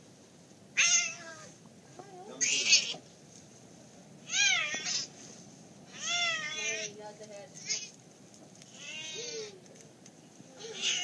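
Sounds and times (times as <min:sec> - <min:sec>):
cat yowling: 0:00.8 - 0:01.6, 0:02.4 - 0:03.0, 0:04.2 - 0:05.1, 0:05.9 - 0:06.9, 0:08.7 - 0:09.6, 0:10.6 - 0:11.0.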